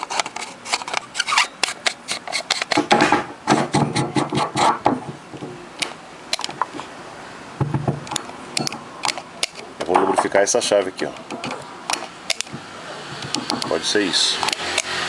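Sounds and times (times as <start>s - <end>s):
scratchy rubbing: 0.0s - 4.9s
dull knock: 7.6s - 8.0s, 12.5s - 13.7s
microphone handling clicks and taps: 11.2s - 13.8s.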